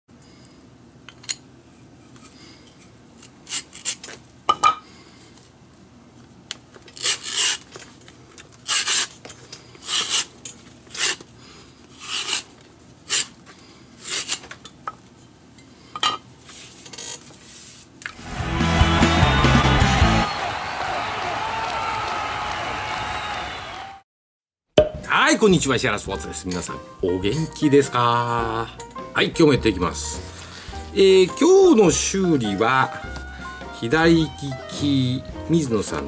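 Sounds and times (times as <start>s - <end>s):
music: 18.2s - 20.6s, 25.5s - 36.0s.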